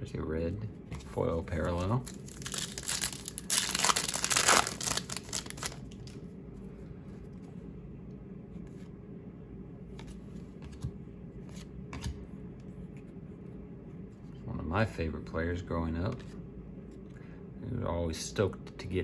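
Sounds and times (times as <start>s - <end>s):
cards being handled: 0.9s - 6.2s, 9.9s - 13.1s
wrapper crinkling and tearing: 1.6s - 6.2s.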